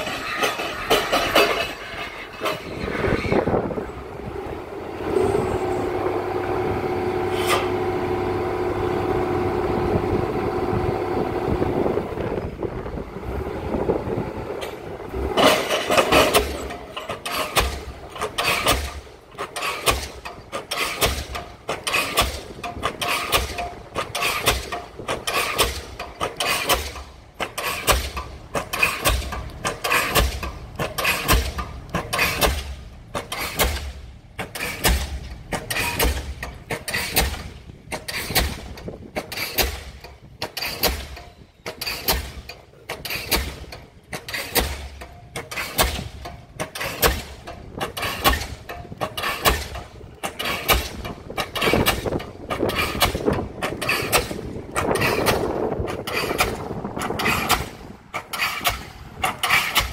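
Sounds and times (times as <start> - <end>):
pile hammer blows: 14.6 - 59.9.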